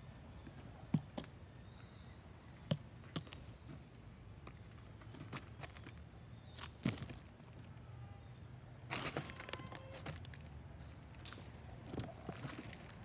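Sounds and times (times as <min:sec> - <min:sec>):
small birds chirping: 0:00.0 - 0:09.8.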